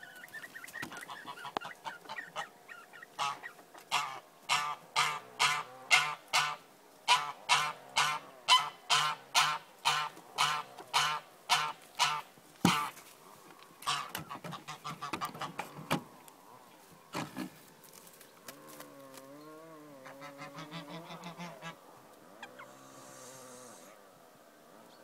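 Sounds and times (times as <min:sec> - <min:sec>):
chicken calling loudly: 0:19.9 - 0:21.8.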